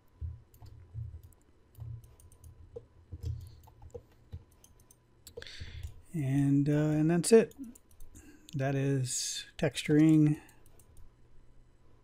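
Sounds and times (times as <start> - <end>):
computer mouse clicks: 0.2 - 6.0, 7.5 - 8.6, 10.0 - 11.1.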